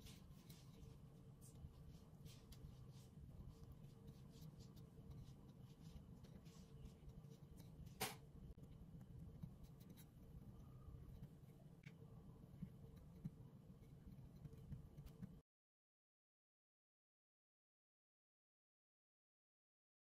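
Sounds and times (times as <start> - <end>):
rolling pin rolling dough: 0.0 - 15.4.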